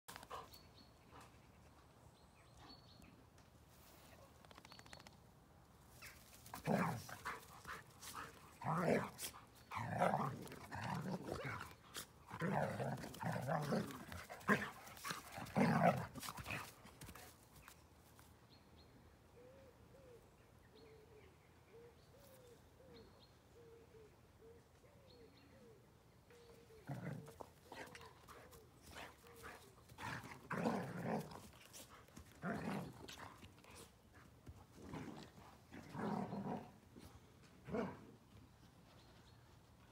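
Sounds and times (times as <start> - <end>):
dogs growling and barking: 6.5 - 16.7, 26.8 - 28.0, 29.0 - 31.6, 32.2 - 33.8, 34.8 - 36.8, 37.6 - 38.1.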